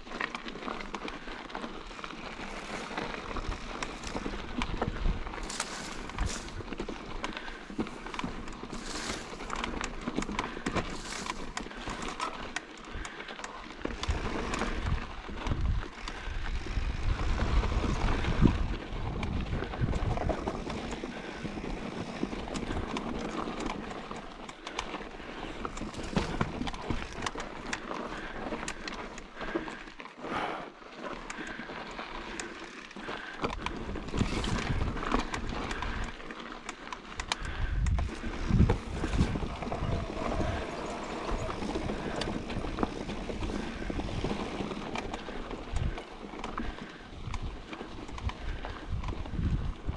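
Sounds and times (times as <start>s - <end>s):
bike rattling: 0.0s - 49.9s
tyres rolling over dirt: 0.0s - 49.9s
wind on microphone: 14.1s - 20.4s, 37.4s - 44.4s, 48.1s - 49.9s.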